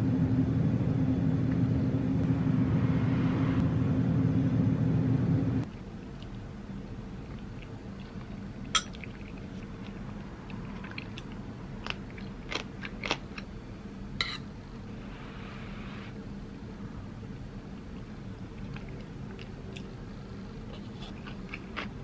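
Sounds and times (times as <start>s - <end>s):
steady low hum: 0.0s - 22.0s
soft chewing: 5.6s - 13.5s, 17.6s - 22.0s
spoon and chopsticks clinking bowl: 8.7s - 9.1s.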